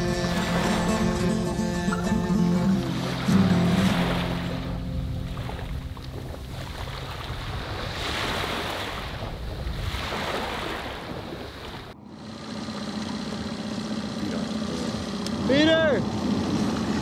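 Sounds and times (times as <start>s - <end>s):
waves washing in: 0.0s - 14.2s
wind buffeting microphone: 4.7s - 12.0s.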